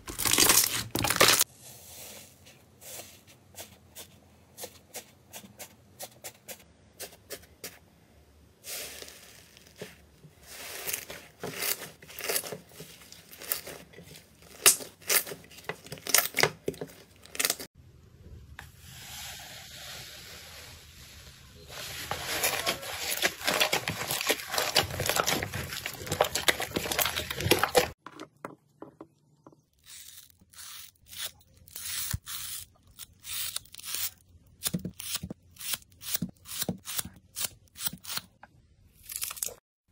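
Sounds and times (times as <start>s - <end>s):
crunching dried slime crust: 22.3s - 28.0s.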